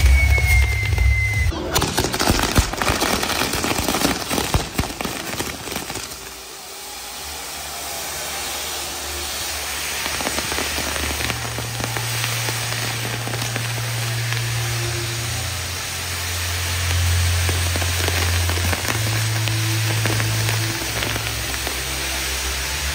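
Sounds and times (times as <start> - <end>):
fireworks bangs and crackles: 0.0 - 22.9
hissing crackle: 0.0 - 22.9
low hum: 10.8 - 22.8.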